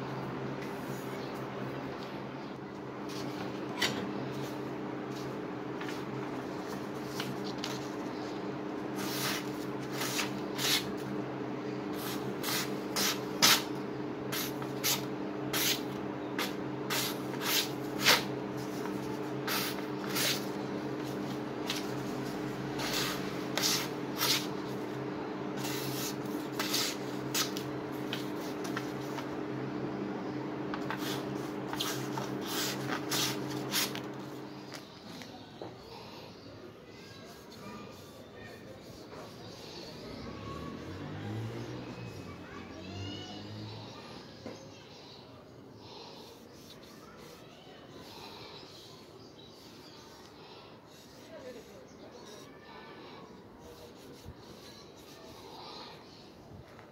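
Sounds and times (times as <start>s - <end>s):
steady low hum: 0.0s - 36.7s.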